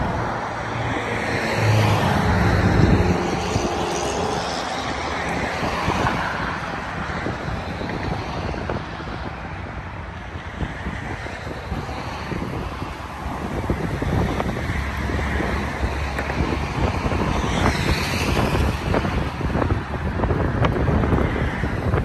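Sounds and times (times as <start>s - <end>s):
car passing: 0.0s - 10.1s
wind buffeting microphone: 0.0s - 22.0s.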